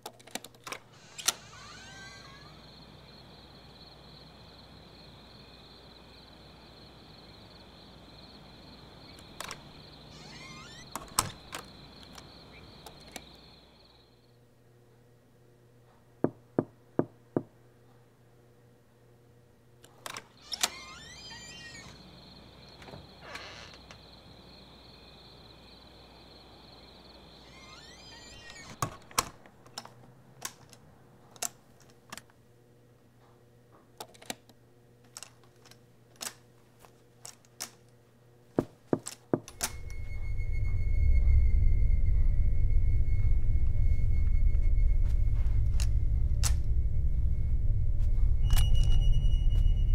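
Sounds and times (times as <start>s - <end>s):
crickets chirping: 0.8s - 14.5s, 20.4s - 29.4s, 39.5s - 49.9s
knocking on wooden door: 16.2s - 17.5s
low rumbling drone: 39.6s - 49.9s.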